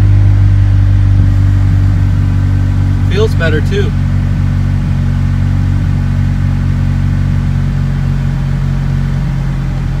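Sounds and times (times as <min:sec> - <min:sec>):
car engine idling: 0:00.0 - 0:10.0.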